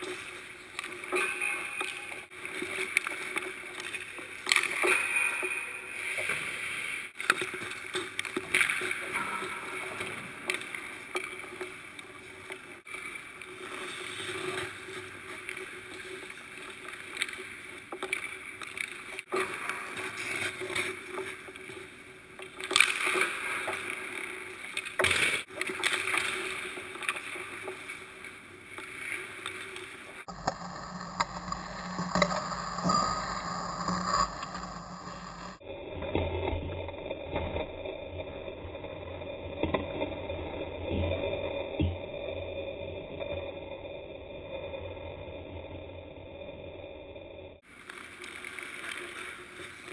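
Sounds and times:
sticks striking pucks: 30.2s - 35.6s.

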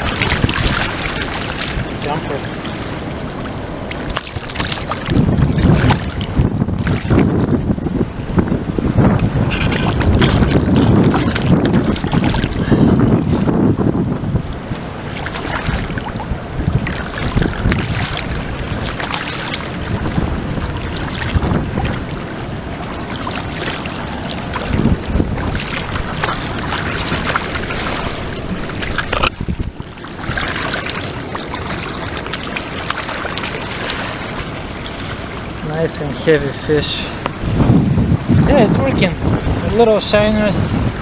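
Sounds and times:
fish splashing: 0.0s - 7.6s, 9.3s - 13.3s, 14.9s - 35.7s
river water rushing: 0.0s - 38.5s
wind buffeting microphone: 0.0s - 41.0s.

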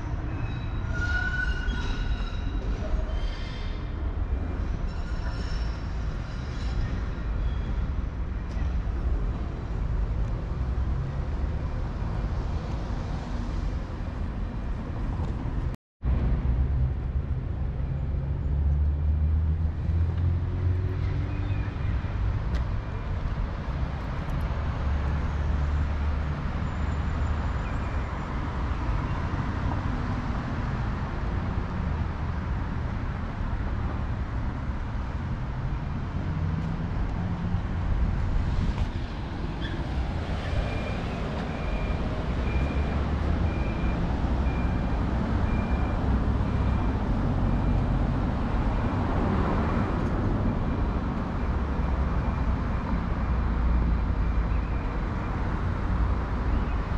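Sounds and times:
road traffic passing: 0.0s - 56.9s
pedestrian crossing beeps: 40.4s - 49.0s, 50.2s - 55.8s.

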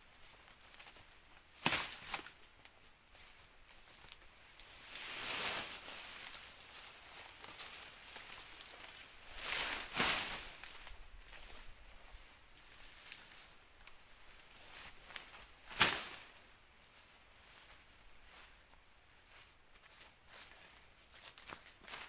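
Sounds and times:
high-pitched insect chorus: 0.0s - 22.0s
rustling: 0.5s - 16.4s.

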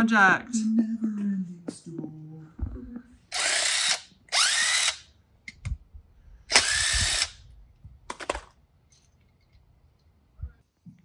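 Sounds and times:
power drill spinning up: 3.3s - 5.1s, 6.5s - 7.5s.

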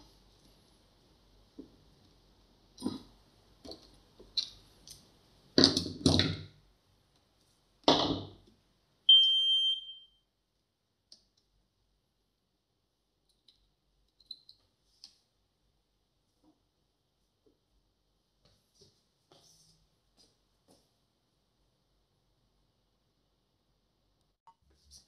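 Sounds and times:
loud electronic beep: 9.1s - 10.2s.

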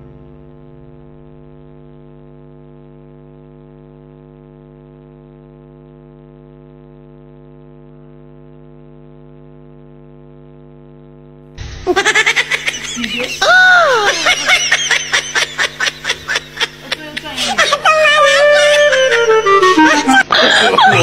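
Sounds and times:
low synthesizer drone: 0.0s - 1.5s, 12.6s - 21.0s.

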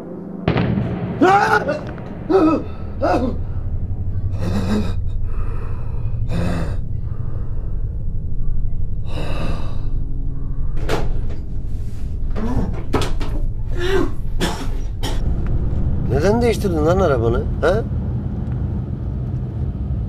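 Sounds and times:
man moaning: 1.2s - 3.4s, 4.4s - 5.5s, 6.3s - 6.8s
low car engine hum: 2.1s - 20.0s
man breathing hard: 4.6s - 8.3s.

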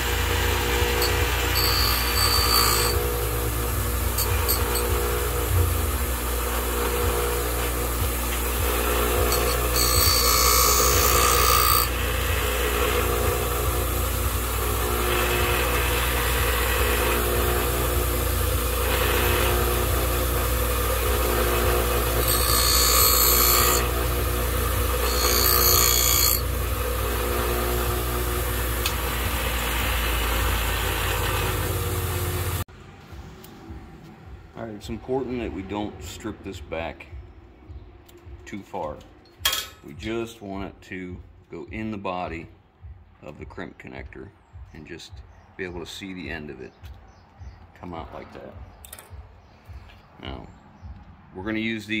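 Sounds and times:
bench grinder motor humming: 0.0s - 32.6s.

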